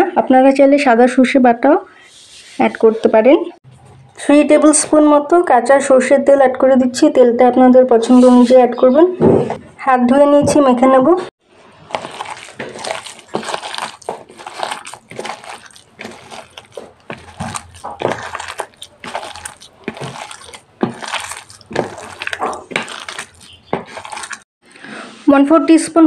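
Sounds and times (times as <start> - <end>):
hand squelching moist food mix: 11.5 - 24.5.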